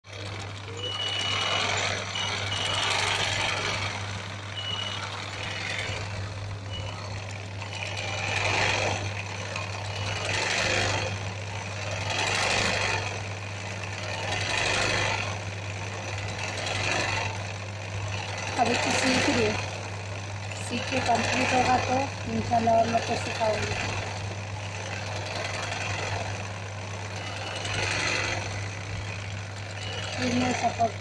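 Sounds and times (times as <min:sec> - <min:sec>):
sewing machine motor hum: 0:00.0 - 0:31.0
sewing machine needle rattle: 0:00.1 - 0:31.0.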